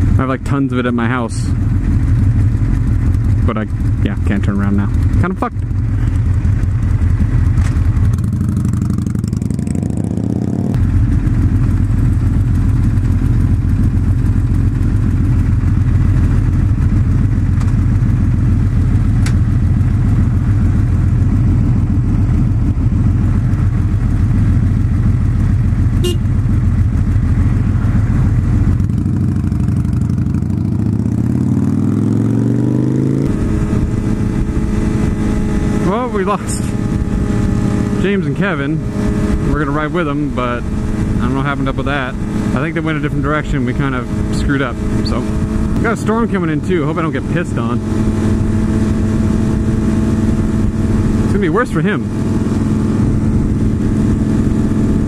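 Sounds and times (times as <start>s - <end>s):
motorcycle engine riding at speed: 0.0s - 55.0s
wind rush: 52.0s - 55.0s.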